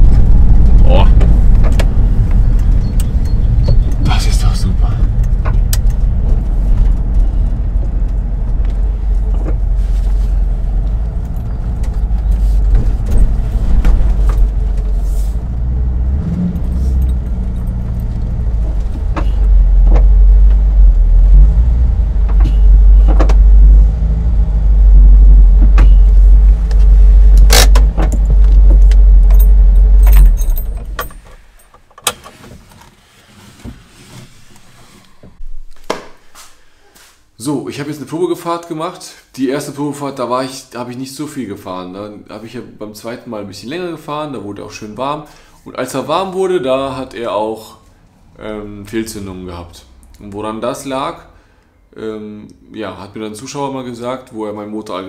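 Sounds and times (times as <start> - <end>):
van engine droning: 0.0 - 32.3.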